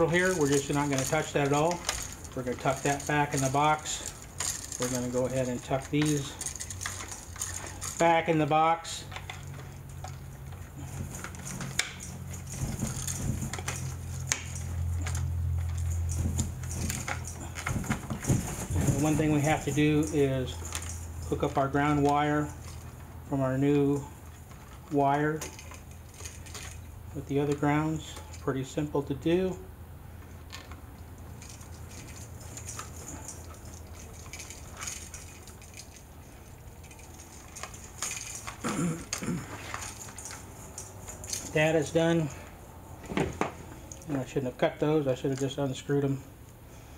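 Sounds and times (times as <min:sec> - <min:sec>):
wires clicking and scraping in box: 0:00.0 - 0:29.5, 0:30.2 - 0:45.8.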